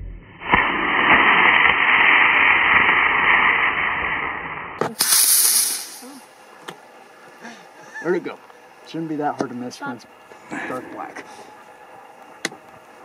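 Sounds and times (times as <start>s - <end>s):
rocket rushing hiss: 0.4s - 6.3s
rocket motor pop: 0.4s - 6.8s.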